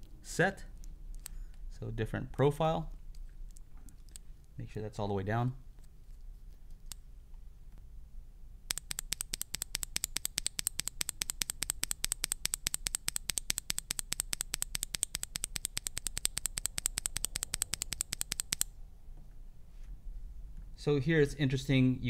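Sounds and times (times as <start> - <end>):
keyboard switch clacking: 8.7 - 18.6.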